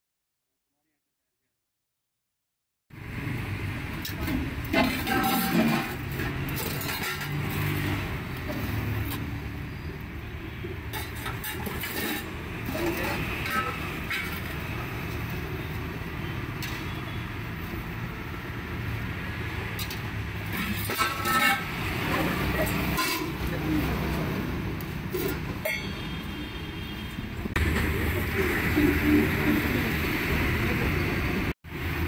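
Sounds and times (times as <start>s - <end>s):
road traffic rumble: 2.9s - 32.0s
ladles clinking on steel pots: 4.7s - 8.6s, 20.5s - 23.8s, 25.1s - 26.3s.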